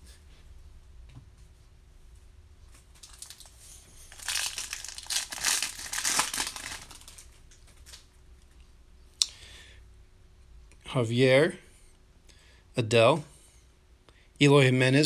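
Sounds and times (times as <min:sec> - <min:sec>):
foil wrapper crinkling: 0:02.9 - 0:08.0.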